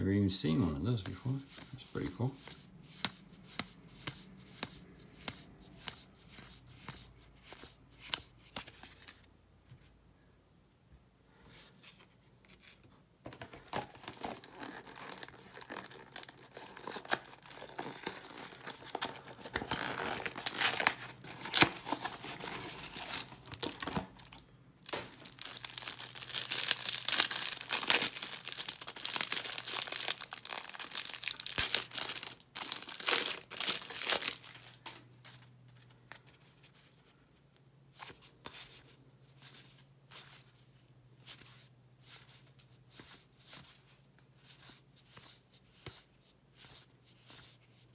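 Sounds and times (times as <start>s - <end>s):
plastic wrapper tearing and crinkling: 13.6s - 34.9s.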